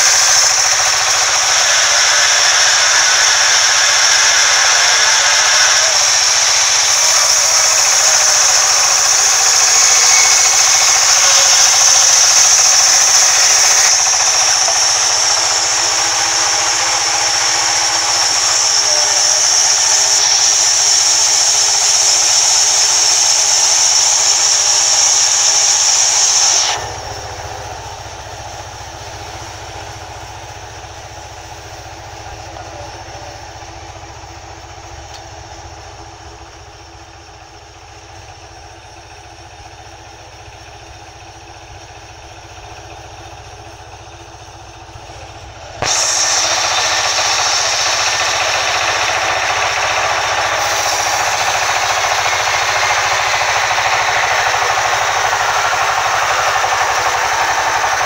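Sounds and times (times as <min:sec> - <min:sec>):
band saw blade hissing in wood: 0:00.0 - 0:34.0, 0:42.7 - 0:58.0
machine humming and rumbling: 0:00.0 - 0:58.0.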